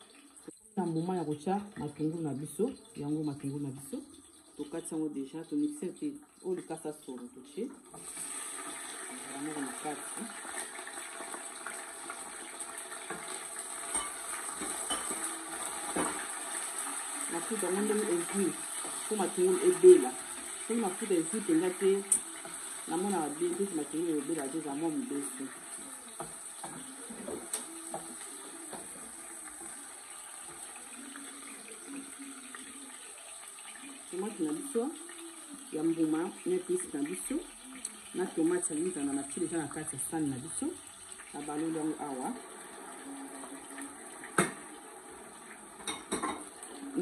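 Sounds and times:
sauce bubbling in a pan: 0:07.8 - 0:47.0
spoon knocking against pan: 0:13.1 - 0:16.4.

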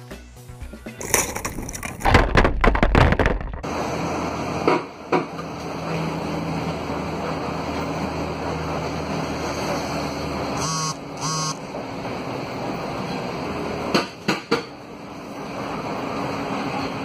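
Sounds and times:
skis and poles clattering on asphalt: 0:01.0 - 0:03.7
bus engine and road noise: 0:03.6 - 0:17.0.

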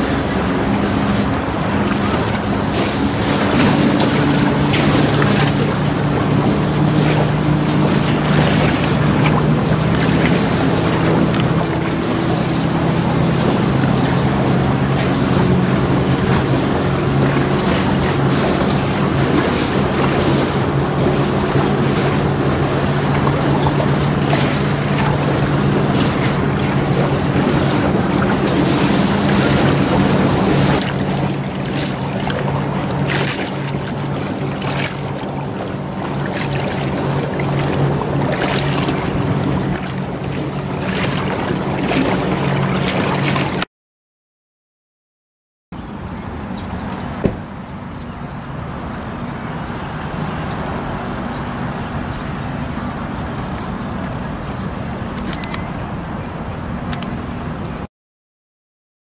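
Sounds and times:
motor engine running: 0:00.0 - 0:43.6
wind buffeting microphone: 0:00.0 - 0:43.6.

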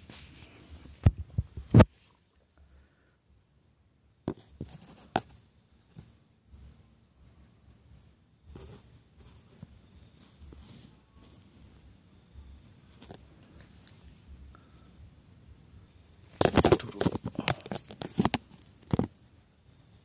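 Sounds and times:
faint cricket chirping: 0:00.0 - 0:20.0
loud crackling and rustling: 0:16.4 - 0:18.4.

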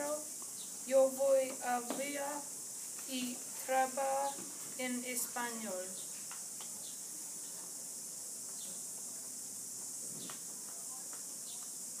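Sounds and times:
faint chirps and clicks: 0:00.0 - 0:02.1, 0:05.9 - 0:07.7, 0:08.4 - 0:11.8
high-pitched hiss: 0:00.0 - 0:12.0.

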